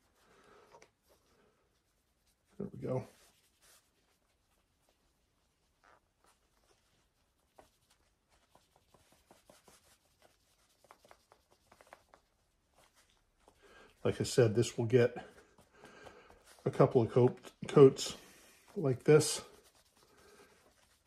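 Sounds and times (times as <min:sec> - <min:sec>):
cloth pad rubbing on wood: 0:01.7 - 0:13.3, 0:18.2 - 0:21.0.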